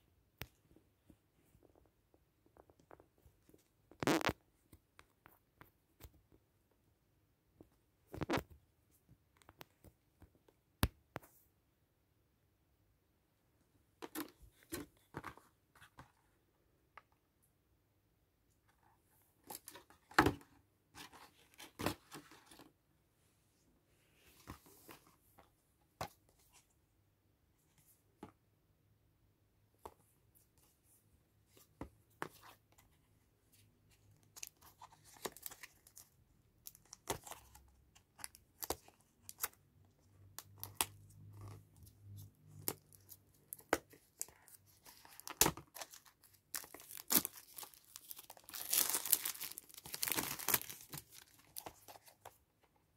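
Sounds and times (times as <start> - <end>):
plastic wrap crinkling and tearing: 44.8 - 51.9.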